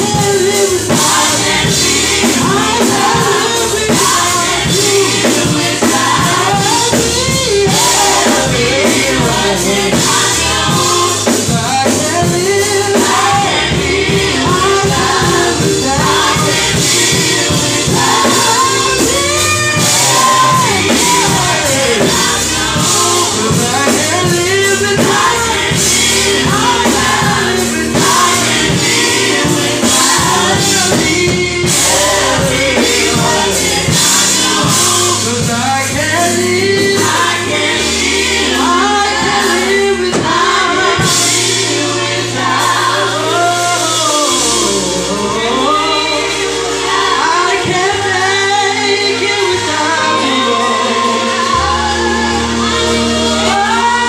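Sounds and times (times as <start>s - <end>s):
bass and beat accompaniment: 0.0s - 54.0s
choir singing gospel: 0.0s - 54.0s.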